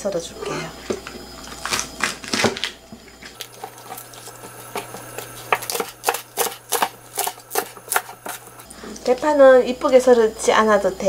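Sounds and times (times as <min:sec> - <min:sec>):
knife chopping on wooden board: 0:03.5 - 0:08.6.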